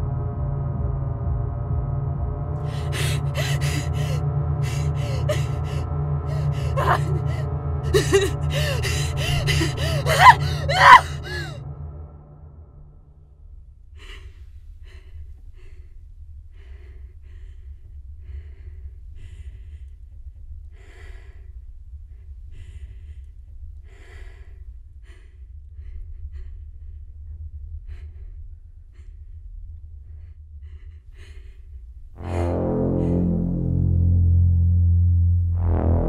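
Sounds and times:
woman breathing hard: 2.6s - 11.6s, 14.0s - 33.4s.

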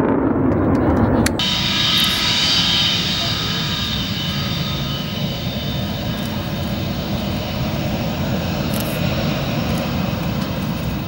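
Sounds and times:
jet engines rumbling: 0.0s - 11.0s.

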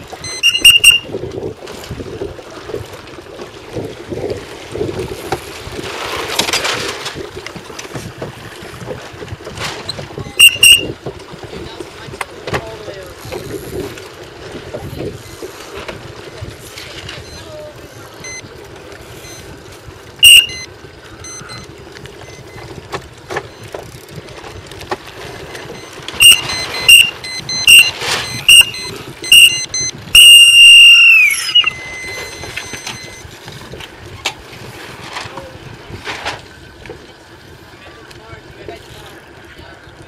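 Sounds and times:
water noise: 0.0s - 40.0s
wind: 0.0s - 40.0s
high-pitched signal blasts: 0.2s - 1.1s, 10.3s - 10.9s, 20.2s - 21.6s, 25.6s - 33.3s.

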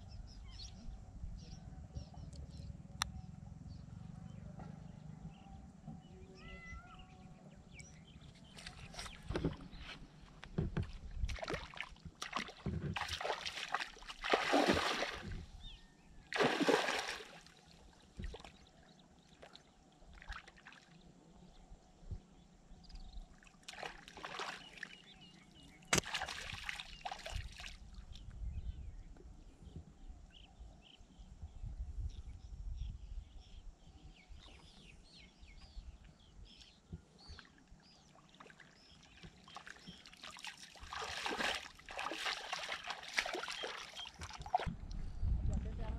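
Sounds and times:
bird chirping: 0.0s - 10.0s
water splashing and sloshing: 8.4s - 15.6s, 16.3s - 21.0s, 23.3s - 28.2s, 37.3s - 45.9s.

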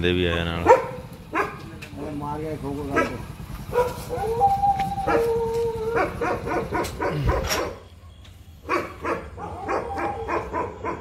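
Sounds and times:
dog yelping and barking: 0.2s - 1.6s, 2.9s - 7.9s, 8.6s - 11.0s
dog howling: 3.7s - 7.7s, 9.0s - 11.0s.

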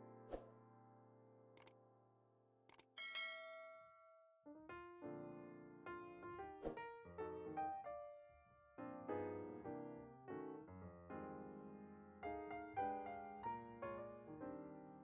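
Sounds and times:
brief click: 1.6s - 1.8s
piano chords: 4.5s - 15.0s.

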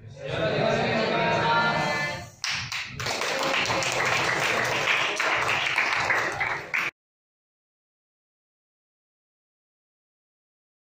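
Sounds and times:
students applauding: 2.4s - 6.9s.

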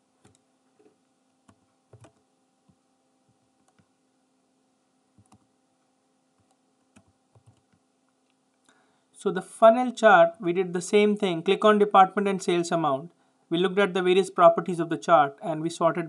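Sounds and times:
low steady hum: 0.0s - 16.0s
keyboard and mouse clicks: 0.2s - 2.8s, 3.6s - 3.9s, 5.2s - 5.5s, 6.4s - 8.4s.

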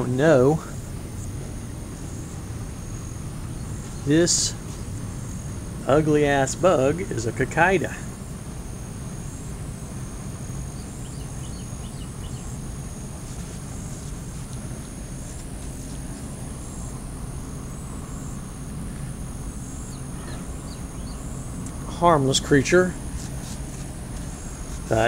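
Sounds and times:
high-pitched insect drone: 0.0s - 25.0s
steady low rumble: 0.0s - 25.0s
faint bird chirps: 10.6s - 13.1s, 17.6s - 22.0s.

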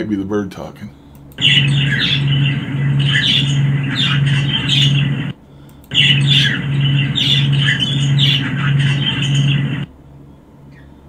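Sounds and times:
low pulsing hum: 1.2s - 11.0s
budgerigar chirps and squawks: 1.4s - 5.1s, 5.9s - 9.7s.

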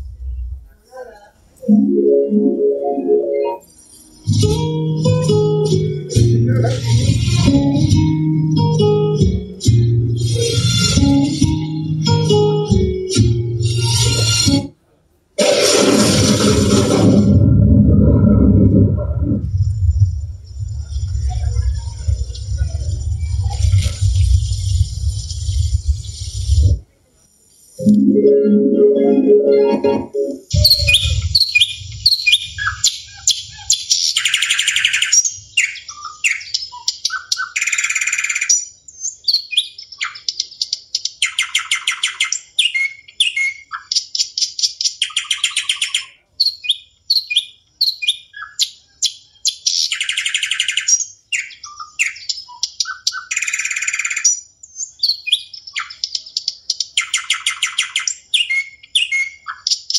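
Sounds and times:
fast bird trill: 30.5s - 38.5s
birds chirping and twittering: 30.5s - 59.9s.

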